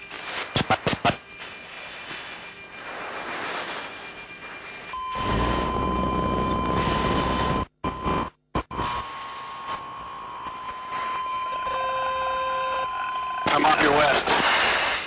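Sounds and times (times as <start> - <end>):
steady high-pitched tone: 8.7 - 14.3.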